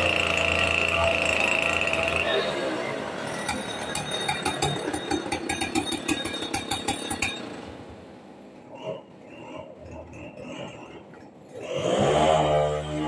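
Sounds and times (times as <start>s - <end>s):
chainsaw idling: 0.0s - 2.6s.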